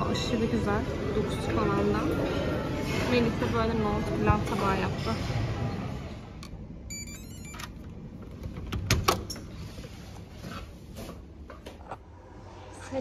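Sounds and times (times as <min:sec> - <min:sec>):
electronic lock beeps: 0:06.9 - 0:07.8.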